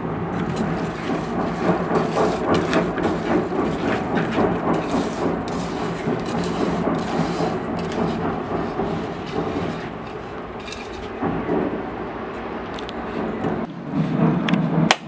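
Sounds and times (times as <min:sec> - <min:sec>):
hands squishing wet food: 0:00.4 - 0:10.6.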